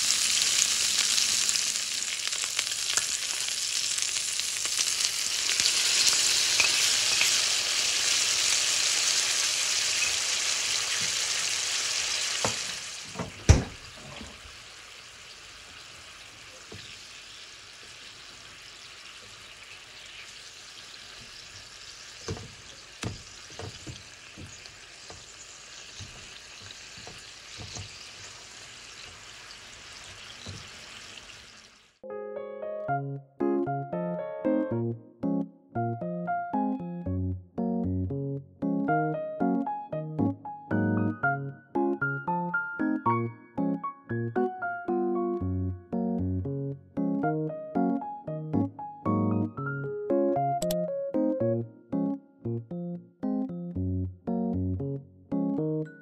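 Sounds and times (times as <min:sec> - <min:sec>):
food sizzling in frying pan: 0:00.0 - 0:32.0
sauce bubbling in pan: 0:00.0 - 0:32.0.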